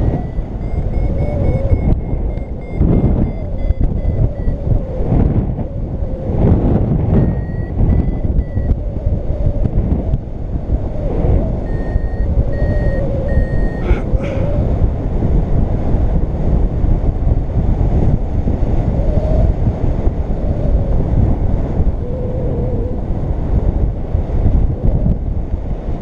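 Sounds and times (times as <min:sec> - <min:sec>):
high-pitched variometer beeps: 0:00.0 - 0:05.8, 0:07.1 - 0:08.9, 0:11.6 - 0:14.5
wind buffeting microphone: 0:00.0 - 0:26.0.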